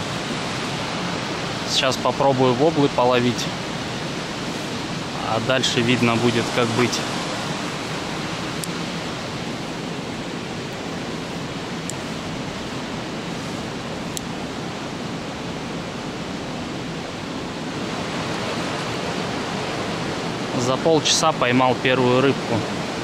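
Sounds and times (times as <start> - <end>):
flowing water rushing: 0.0 - 23.0.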